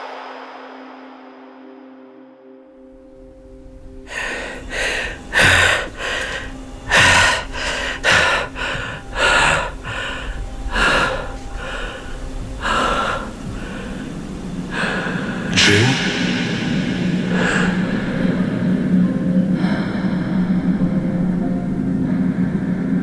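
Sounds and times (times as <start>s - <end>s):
low steady hum: 2.9s - 23.0s
man gasping for breath: 4.1s - 18.5s.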